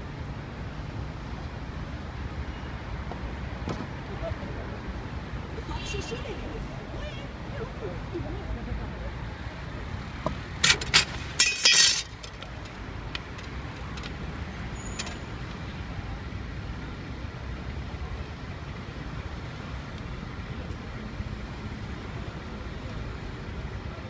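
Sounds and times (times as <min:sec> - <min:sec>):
street traffic: 0:00.0 - 0:24.0
sharp clinks and clatters: 0:10.6 - 0:14.1.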